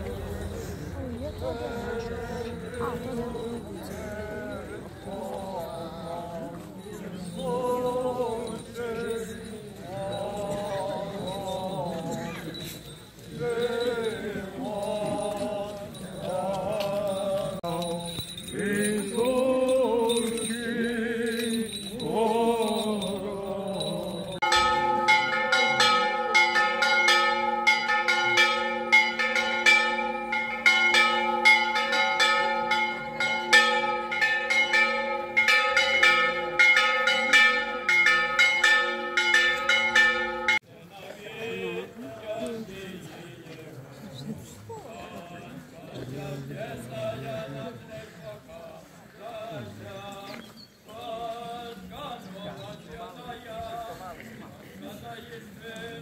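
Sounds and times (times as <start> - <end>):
voices singing: 0.0 - 24.5, 40.6 - 56.0
church bells ringing peal: 22.7 - 40.6.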